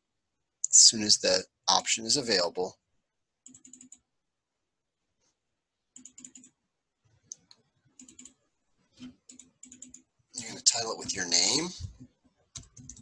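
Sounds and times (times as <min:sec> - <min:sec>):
computer mouse clicking: 0:03.4 - 0:04.0, 0:05.9 - 0:06.6, 0:07.3 - 0:08.4, 0:09.0 - 0:10.1, 0:12.0 - 0:13.0.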